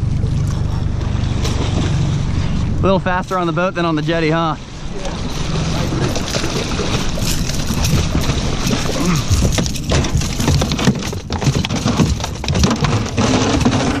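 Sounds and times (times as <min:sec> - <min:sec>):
fish splashing and thrashing: 0:00.0 - 0:14.0
water noise: 0:00.0 - 0:14.0
wind: 0:00.0 - 0:14.0
fish knocking against hull: 0:05.2 - 0:14.0.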